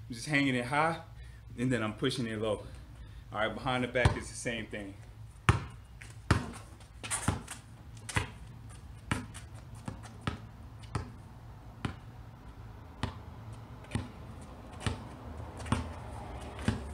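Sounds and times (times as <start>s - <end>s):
basketball bouncing on concrete: 4.0s - 4.4s, 5.4s - 11.2s, 11.8s - 12.2s, 12.8s - 16.9s.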